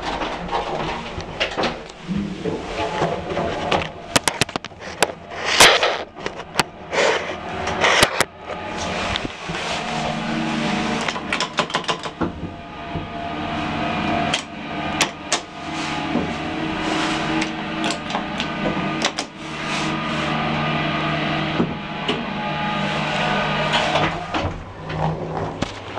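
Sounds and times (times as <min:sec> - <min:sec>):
lift motor hum: 0:00.0 - 0:25.9
lift mechanism clicks and knocks: 0:11.0 - 0:13.1.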